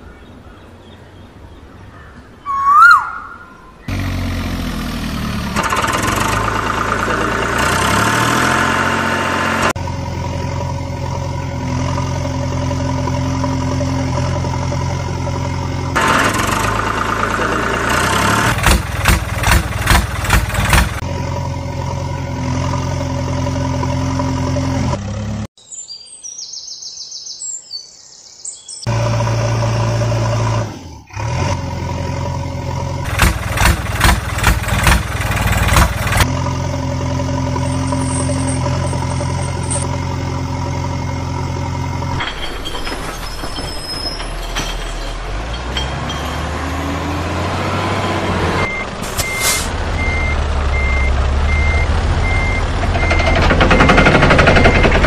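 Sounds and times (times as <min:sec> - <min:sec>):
tractor engine idling and revving: 0:03.8 - 0:25.6, 0:28.8 - 0:55.0.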